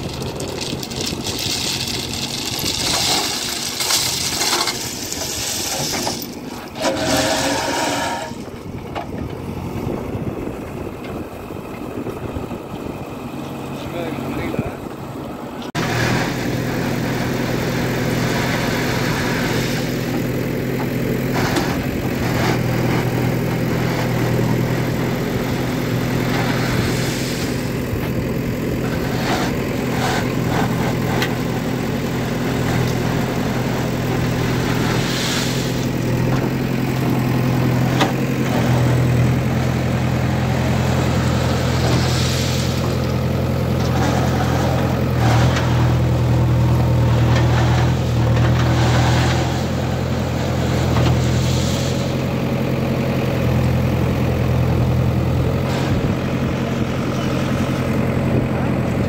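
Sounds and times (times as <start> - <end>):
stones scraping against bucket: 0.0 - 8.6, 18.8 - 28.2, 28.8 - 52.2
diesel engine running under load: 0.0 - 59.0.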